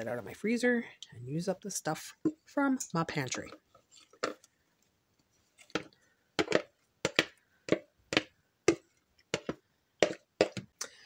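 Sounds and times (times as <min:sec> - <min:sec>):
wooden spoon knocking on bowl: 0:05.7 - 0:10.8.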